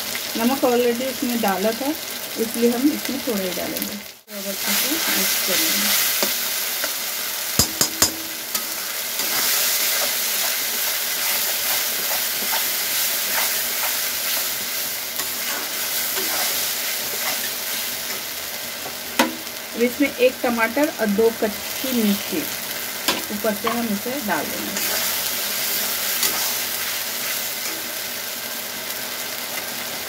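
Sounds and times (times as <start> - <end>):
spice paste sizzling in oil: 0.0 - 30.0
spatula clinking on pan: 7.6 - 8.3
spatula scraping pan: 8.5 - 18.2, 24.6 - 27.9.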